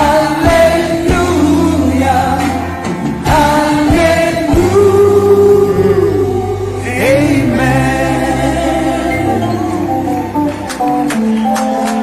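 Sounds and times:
band playing gospel music: 0:00.0 - 0:12.0
person singing long held notes: 0:04.4 - 0:10.4.

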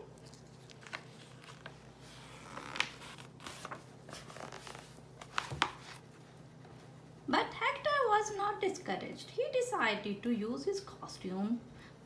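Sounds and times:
book pages turning: 0:00.0 - 0:06.1.

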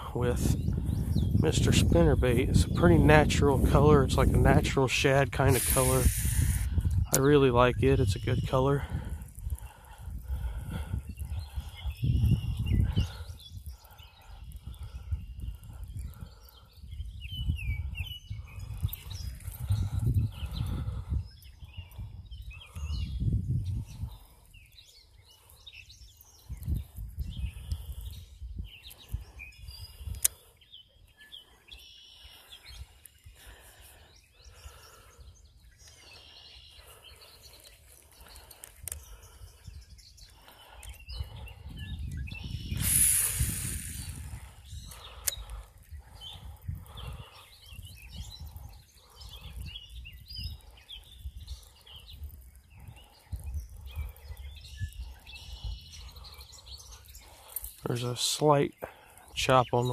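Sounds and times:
wind gusts on microphone: 0:00.0 - 0:30.7, 0:31.3 - 0:59.9
small birds chirping: 0:00.0 - 0:59.9
loud hissing rush: 0:03.6 - 0:06.8, 0:42.6 - 0:45.6.

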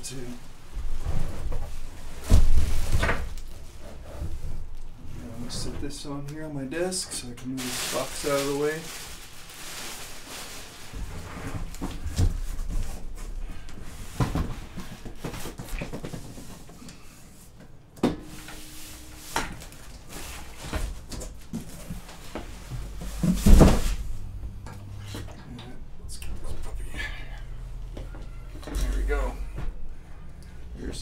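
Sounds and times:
cardboard and bubble wrap rustling: 0:00.2 - 0:05.7, 0:07.4 - 0:16.8, 0:18.2 - 0:24.3.

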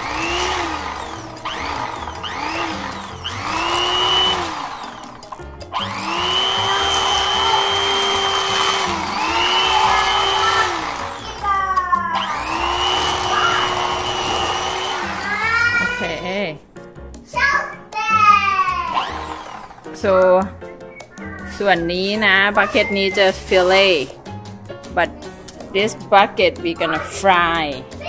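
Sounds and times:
electric knife whirring: 0:00.0 - 0:16.2, 0:18.9 - 0:20.0, 0:22.6 - 0:24.4.

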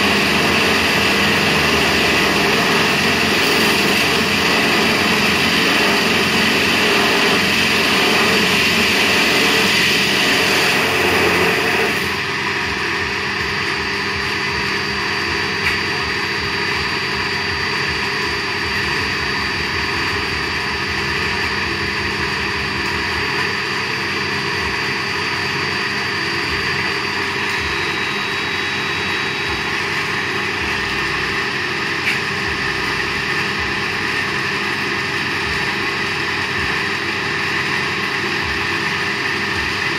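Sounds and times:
band saw cutting polystyrene: 0:00.0 - 0:12.4.

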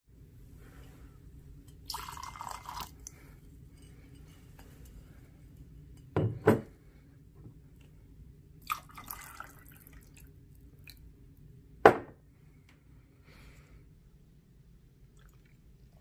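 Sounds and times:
low steady hum: 0:00.1 - 0:16.0
liquid pouring: 0:01.9 - 0:03.2, 0:08.6 - 0:11.0, 0:15.1 - 0:16.0
bottle and glass knocked on surface: 0:11.9 - 0:12.2.

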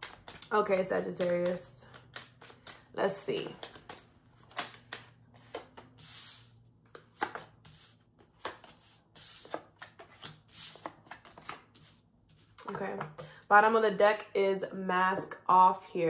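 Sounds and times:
cards shuffled by hand: 0:00.0 - 0:12.8.

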